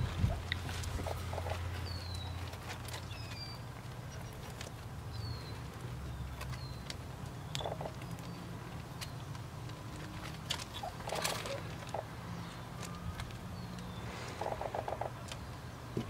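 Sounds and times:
steady low rumble: 0:00.0 - 0:02.1
pebbles shifting under paws: 0:00.0 - 0:15.4.

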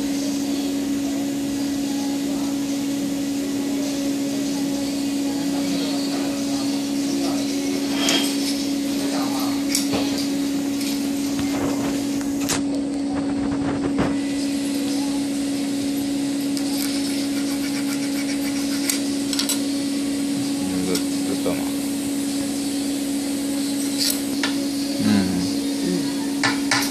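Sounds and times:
low machine hum: 0:00.0 - 0:26.9
blade scraping wire: 0:16.6 - 0:19.6.

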